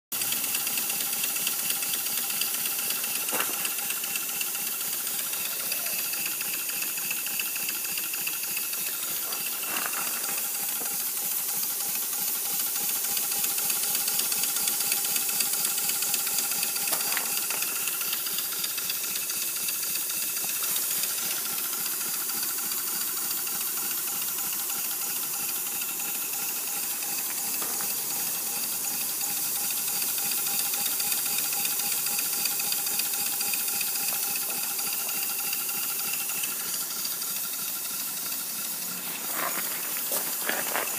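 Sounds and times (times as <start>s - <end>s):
model locomotive running: 0.1s - 40.9s
air hissing: 0.4s - 19.3s, 20.0s - 22.5s, 32.7s - 40.9s.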